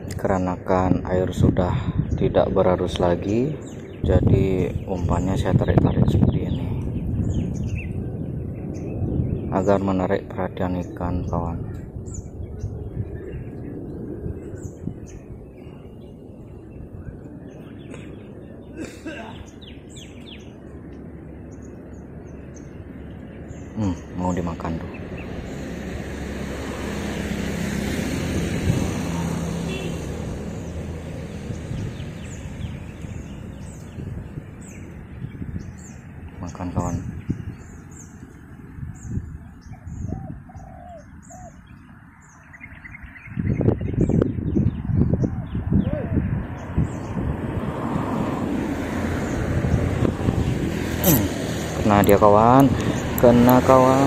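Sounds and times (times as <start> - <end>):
bird chirping: 0.0 - 47.2, 49.0 - 54.0
outdoor background noise: 0.0 - 54.0
dove cooing: 40.1 - 41.6.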